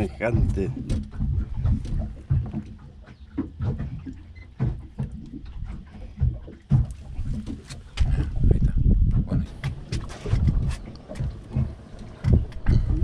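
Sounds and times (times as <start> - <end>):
low rumbling: 0.0 - 13.0.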